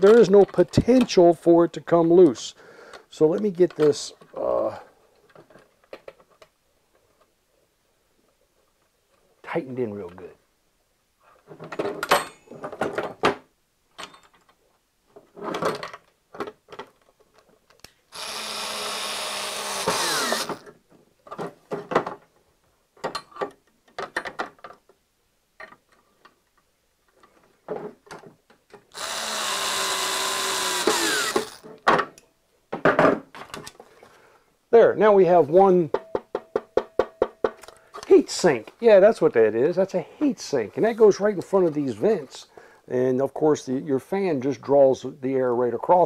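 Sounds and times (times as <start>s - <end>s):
clicks and knocks from handling parts: 2.9s - 4.4s, 5.1s - 7.4s, 11.4s - 18.1s, 23.0s - 25.0s, 25.6s - 29.1s, 35.9s - 38.1s
cordless drill driving screws: 18.1s - 20.7s, 28.9s - 31.7s.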